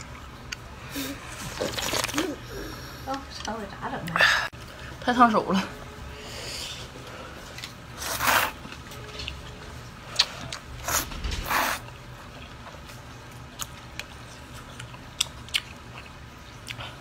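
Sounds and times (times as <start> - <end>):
chewing: 12.3 - 17.0.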